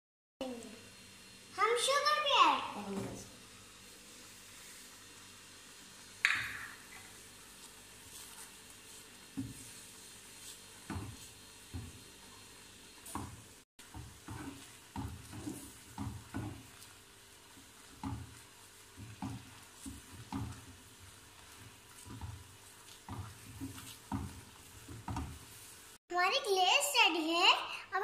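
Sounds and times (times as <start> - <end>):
spatula scraping a frying pan: 7.6 - 26.0.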